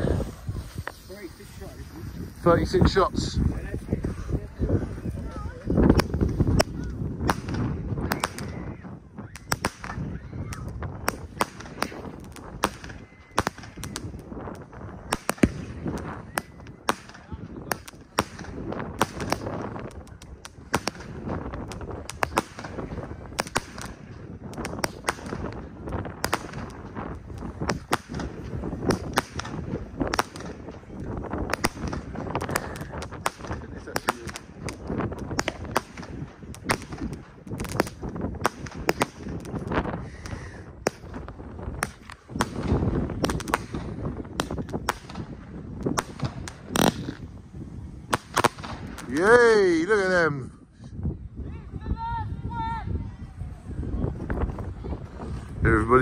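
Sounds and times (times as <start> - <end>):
fireworks bangs and crackles: 0.0 - 51.2, 53.3 - 56.0.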